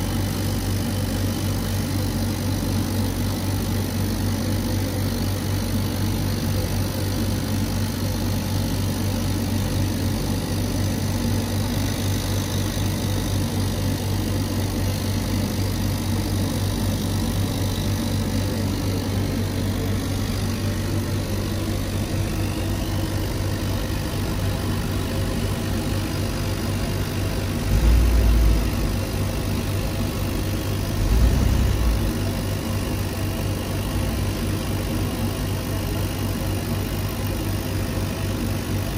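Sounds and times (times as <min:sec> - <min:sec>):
laser cutter humming: 0:00.0 - 0:38.9
low rumbles: 0:27.6 - 0:32.2.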